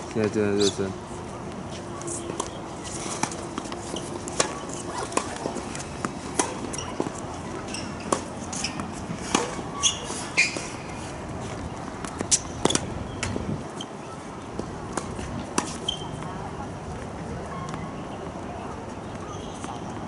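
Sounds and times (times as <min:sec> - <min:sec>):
tennis balls bouncing: 0:02.0 - 0:10.8, 0:11.4 - 0:13.4, 0:14.5 - 0:16.3
tennis balls struck by rackets: 0:02.0 - 0:10.8, 0:11.8 - 0:13.4.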